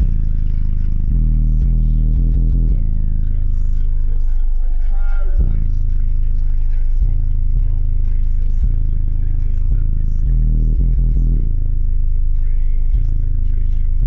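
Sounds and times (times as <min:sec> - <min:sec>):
subwoofers playing heavy bass: 0:00.0 - 0:14.0.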